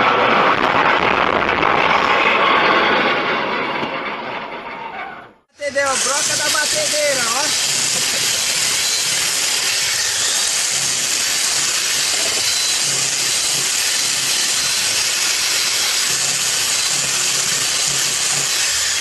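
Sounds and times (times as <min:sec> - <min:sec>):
electric drill scaling fish: 0:05.8 - 0:19.0.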